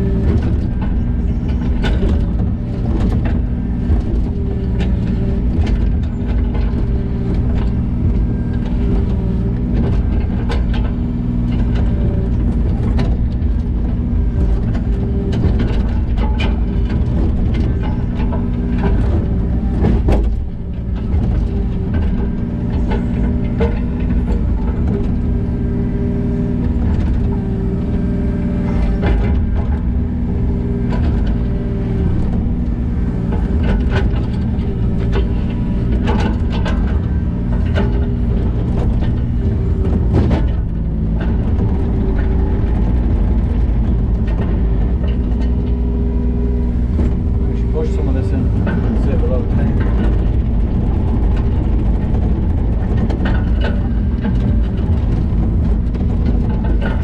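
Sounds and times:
diesel engine running: 0.0 - 57.0
short knocks and clanks: 0.0 - 57.0.

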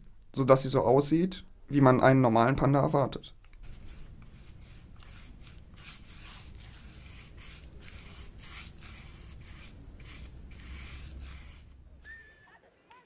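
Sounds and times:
scratchy strokes on paper: 3.6 - 12.2.

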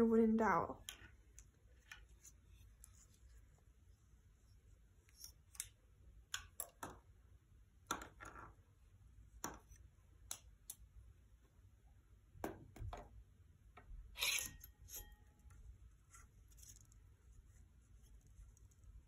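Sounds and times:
wire scraping against wood: 14.2 - 15.2.

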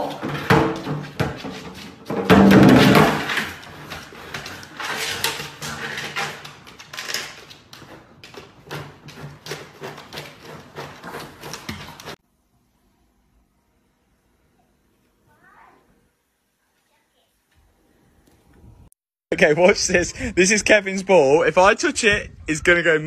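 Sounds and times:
plastic jug knocking and scraping on floor: 0.0 - 12.2.

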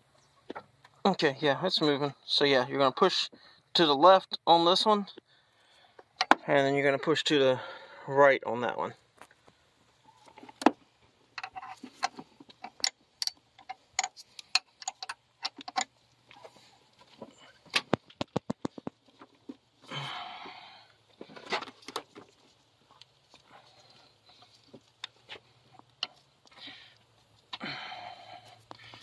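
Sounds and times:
hand tools clicking on metal: 11.4 - 15.9.

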